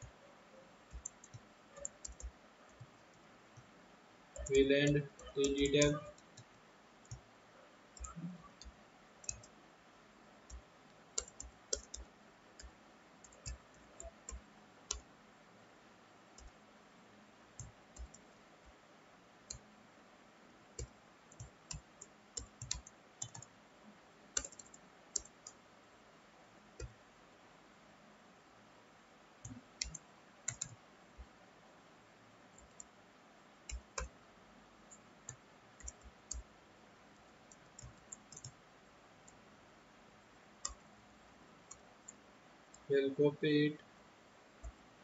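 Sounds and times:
computer keyboard keystrokes: 0:00.9 - 0:03.7, 0:04.4 - 0:07.2, 0:08.0 - 0:09.5, 0:11.2 - 0:15.0, 0:17.6 - 0:18.2, 0:20.8 - 0:23.5, 0:24.4 - 0:25.6, 0:26.8 - 0:27.0, 0:29.4 - 0:30.8, 0:33.7 - 0:34.2, 0:35.3 - 0:36.5, 0:37.5 - 0:38.6, 0:40.6 - 0:40.8.

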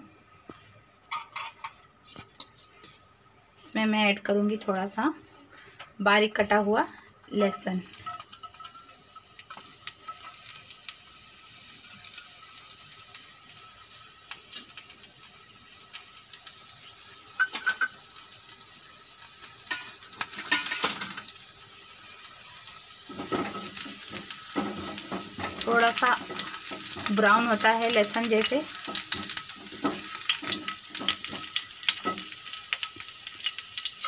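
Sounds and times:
garlic sizzling in hot oil: 0:03.6 - 0:34.0
spatula scraping pan: 0:22.4 - 0:27.6.

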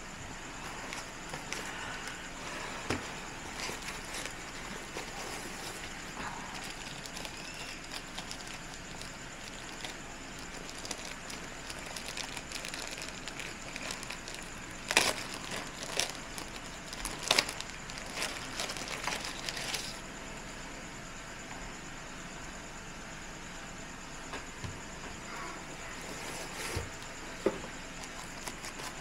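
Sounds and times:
plastic sleeve crinkling: 0:03.3 - 0:20.0.

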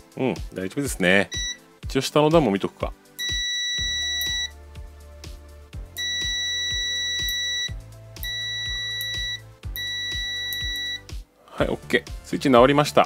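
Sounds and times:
background music: 0:00.0 - 0:13.0
multimeter long beeps: 0:01.3 - 0:01.6, 0:03.2 - 0:04.6, 0:06.0 - 0:11.1.

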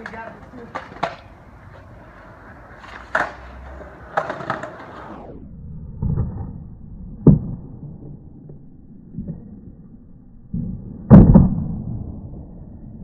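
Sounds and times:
skateboard clacks: 0:00.0 - 0:05.2
skateboard wheels rolling on asphalt: 0:00.0 - 0:08.2
skateboard landing impact: 0:02.8 - 0:05.2.

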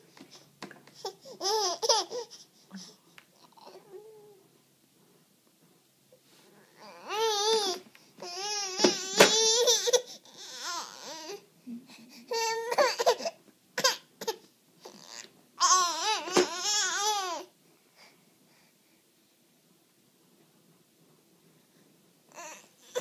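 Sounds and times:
baby crying: 0:06.8 - 0:11.4, 0:12.3 - 0:17.5.

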